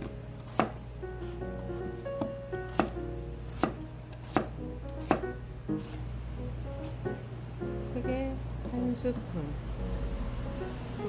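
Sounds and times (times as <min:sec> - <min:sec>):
knife chopping on cutting board: 0:00.0 - 0:00.8, 0:02.2 - 0:06.0.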